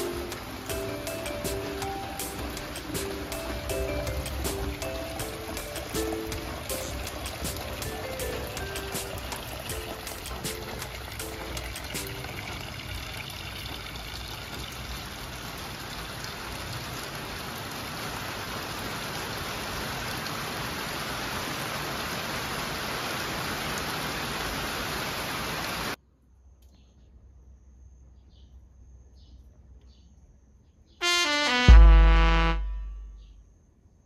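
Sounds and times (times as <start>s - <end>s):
rushing water: 0.0s - 26.0s.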